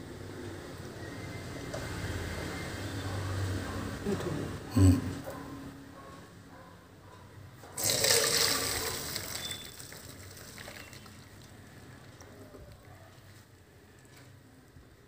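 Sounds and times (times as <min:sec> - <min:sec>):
water pouring into strainer: 0:07.8 - 0:11.6.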